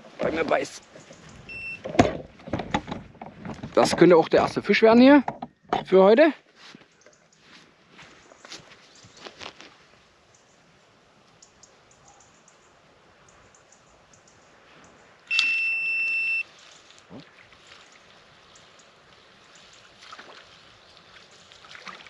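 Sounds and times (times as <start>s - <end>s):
bite alarm beep: 1.5s - 1.9s, 15.3s - 16.5s.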